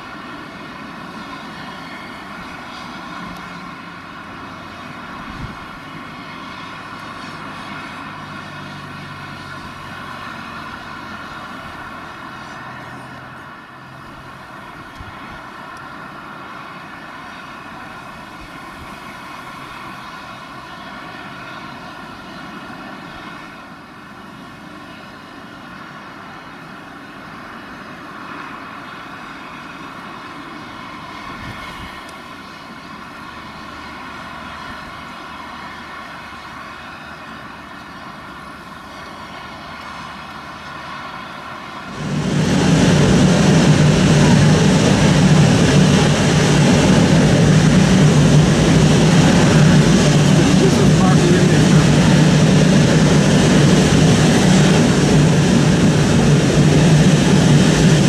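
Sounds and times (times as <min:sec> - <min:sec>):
jet engines whining at taxi: 0:00.0 - 0:58.0.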